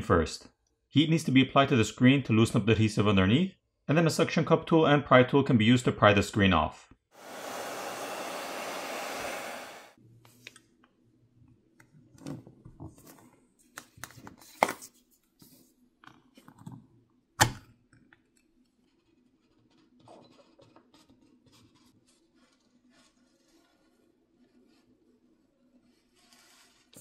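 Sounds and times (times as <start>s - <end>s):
heat gun blowing air: 7.2s - 10.0s.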